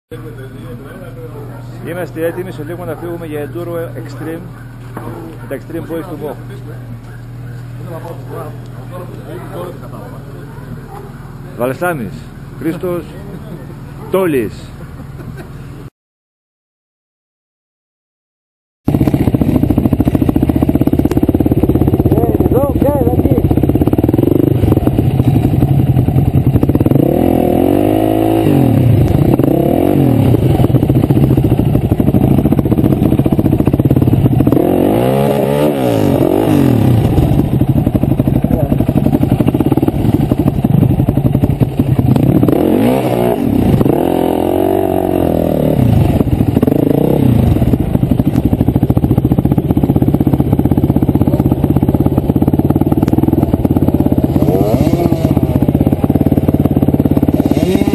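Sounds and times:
dirt bike engine revving: 0:18.9 - 0:57.9.

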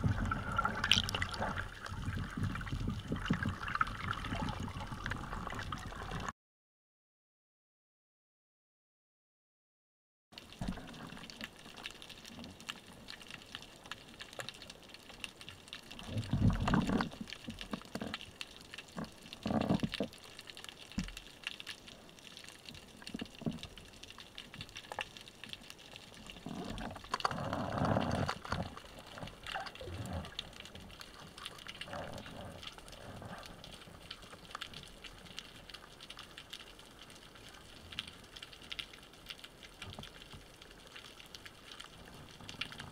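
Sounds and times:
churning water bursts: 0:00.0 - 0:06.3.

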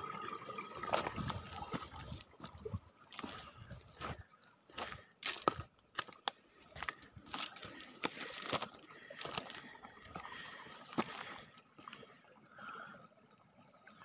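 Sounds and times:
stream trickling: 0:00.0 - 0:14.0
ice clicking and crunching: 0:04.8 - 0:09.7.

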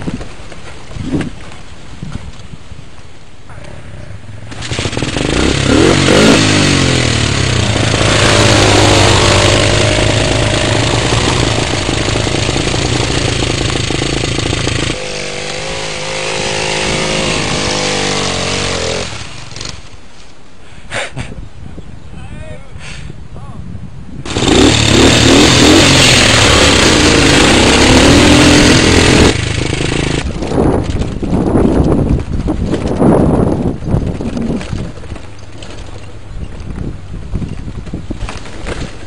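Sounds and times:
dirt bike engine revving: 0:04.4 - 0:19.9, 0:24.2 - 0:31.0.

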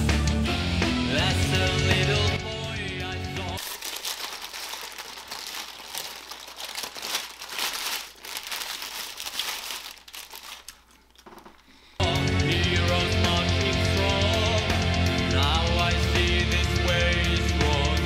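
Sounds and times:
rock music: 0:00.0 - 0:03.6, 0:12.0 - 0:18.0
paper wrapper crinkling: 0:03.6 - 0:11.7.

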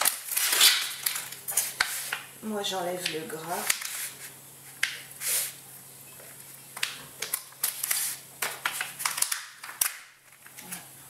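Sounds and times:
paper rustle: 0:00.0 - 0:02.3, 0:03.6 - 0:05.5, 0:07.2 - 0:10.9.

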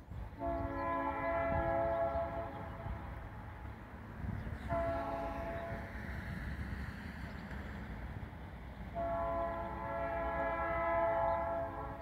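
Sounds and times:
low train rumble: 0:00.0 - 0:12.0
locomotive air horn: 0:00.3 - 0:03.1, 0:04.6 - 0:06.0, 0:08.9 - 0:12.0.

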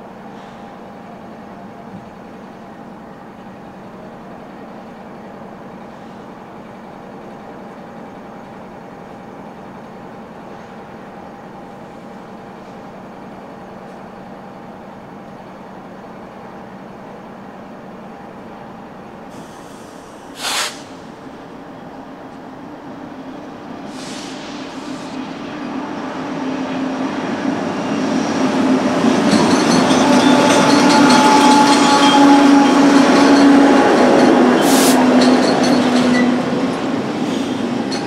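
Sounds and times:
diesel locomotive running: 0:00.0 - 0:38.0
short sharp hiss: 0:19.3 - 0:21.1, 0:23.9 - 0:25.2, 0:34.6 - 0:35.0.

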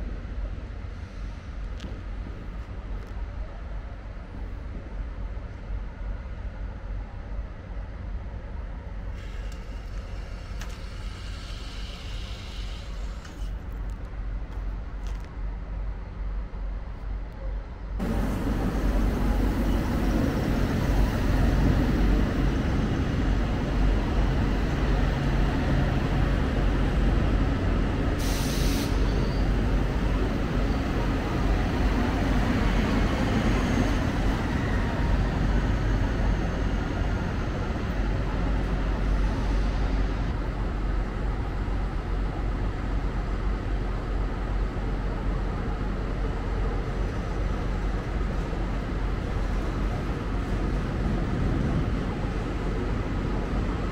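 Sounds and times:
train rumbling past: 0:00.0 - 0:53.9
sharp hiss of air: 0:09.2 - 0:13.6, 0:28.2 - 0:29.6.

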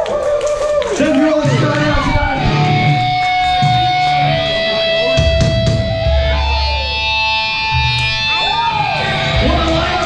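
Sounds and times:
metalcore band playing live: 0:01.4 - 0:10.0.

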